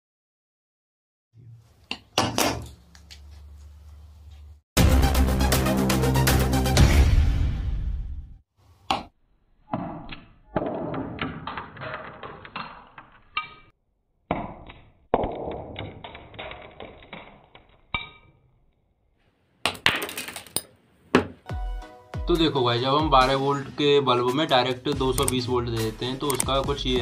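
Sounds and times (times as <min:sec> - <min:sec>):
intro music: 0:04.8 - 0:08.4, 0:21.5 - 0:27.0.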